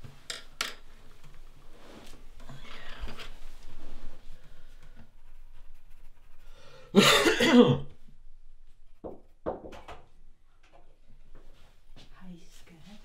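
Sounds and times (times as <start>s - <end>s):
man coughing: 6.9s - 7.9s.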